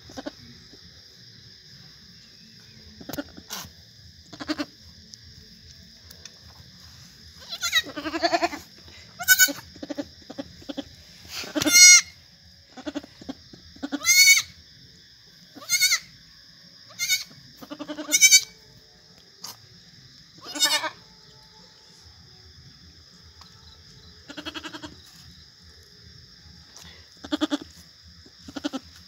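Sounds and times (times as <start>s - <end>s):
goat bleating: 4.3s - 4.7s, 7.4s - 8.6s, 9.2s - 10.9s, 11.5s - 12.1s, 13.8s - 14.5s, 15.6s - 16.1s, 16.9s - 18.6s, 20.4s - 21.0s, 24.3s - 25.0s, 27.2s - 27.7s, 28.4s - 28.9s.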